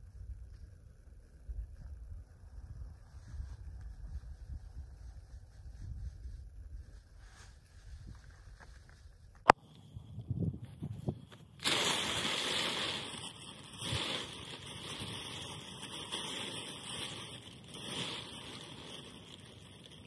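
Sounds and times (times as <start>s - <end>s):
plastic tarp rustling: 11.5s - 20.0s.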